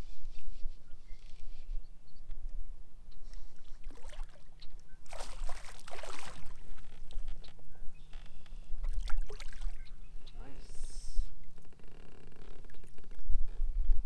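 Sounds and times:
fish thrashing and splashing: 5.1s - 6.6s.

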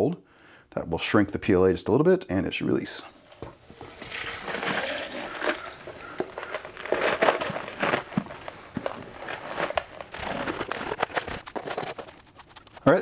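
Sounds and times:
ice chunks clicking and knocking: 3.8s - 12.8s.

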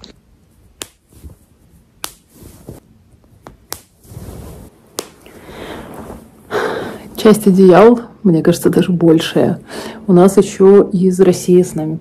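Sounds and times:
bedding rustling: 0.5s - 7.0s.

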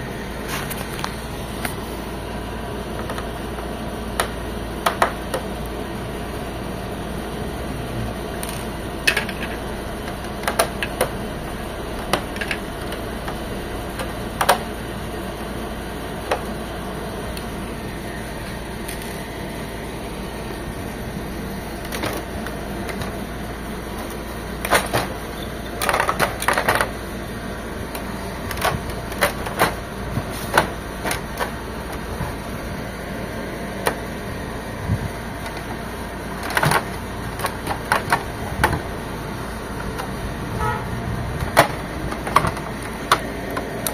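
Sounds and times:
steady background hum: 0.0s - 43.9s
printer parts clicking and clattering: 2.9s - 5.7s, 8.3s - 15.0s, 16.1s - 16.6s, 18.4s - 19.3s, 21.3s - 33.0s, 33.6s - 34.6s, 35.2s - 40.5s, 41.4s - 43.9s.

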